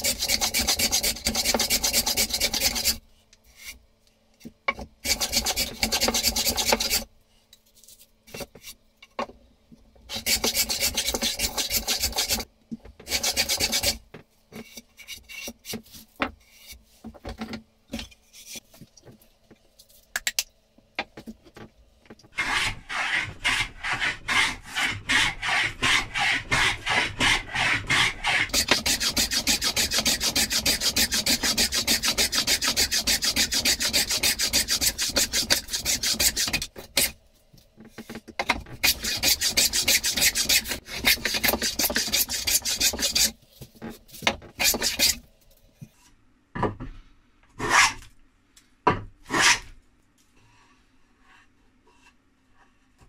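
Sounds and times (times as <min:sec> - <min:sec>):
hand plane shaving wood: 0:00.0 - 0:03.0, 0:05.1 - 0:07.0, 0:10.1 - 0:12.4, 0:13.0 - 0:14.0, 0:22.4 - 0:37.1, 0:38.8 - 0:43.3.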